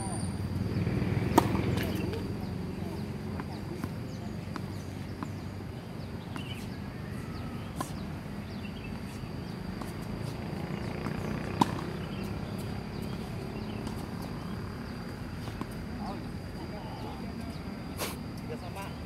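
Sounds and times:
outdoor background noise: 0.0 - 19.0
tennis ball bouncing on court: 1.2 - 5.4, 6.3 - 6.8, 7.6 - 15.9
tennis ball hit by racket: 1.3 - 2.4, 6.3 - 6.8, 7.6 - 8.1, 11.5 - 13.2.

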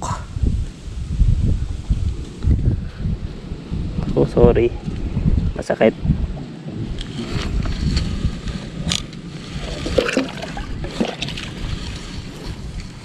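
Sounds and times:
water sloshing against poles: 9.6 - 12.6.

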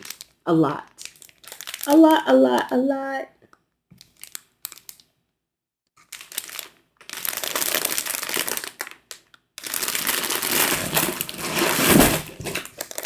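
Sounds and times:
plastic bag crinkling: 0.0 - 2.3, 4.0 - 5.0, 6.0 - 13.0.

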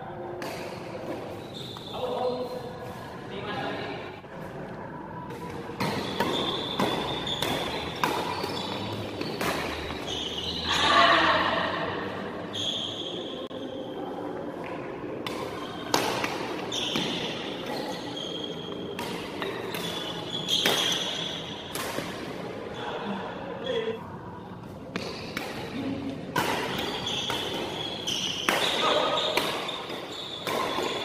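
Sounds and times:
shoes squeaking on court: 1.1 - 2.7, 5.8 - 10.8, 16.6 - 21.6, 26.7 - 31.0
rackets striking shuttlecock: 5.3 - 10.1, 18.7 - 22.3, 24.9 - 31.0.

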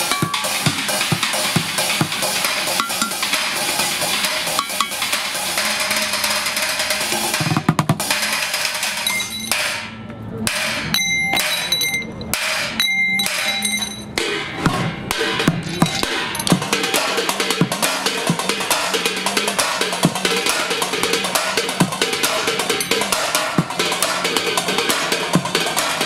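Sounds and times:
steady low beat: 0.0 - 8.8, 14.2 - 26.0
drumming on pots and scrap metal: 0.0 - 26.0.

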